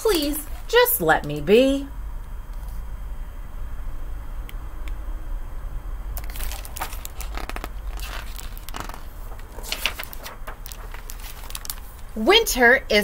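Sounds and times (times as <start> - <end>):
book pages rustling: 6.2 - 12.2.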